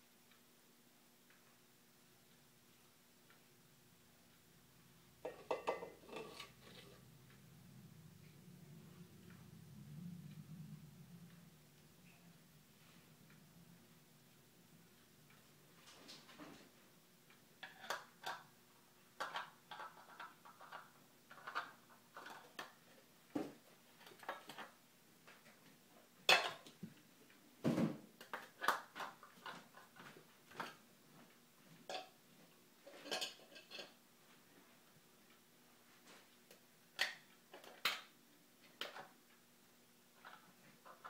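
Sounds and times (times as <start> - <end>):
plastic cups and whisk clinking: 5.2 - 7.0.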